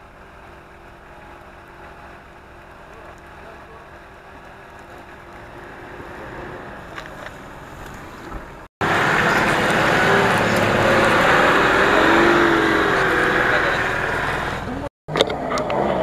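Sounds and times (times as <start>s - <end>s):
vehicle engine running: 0.0s - 16.0s.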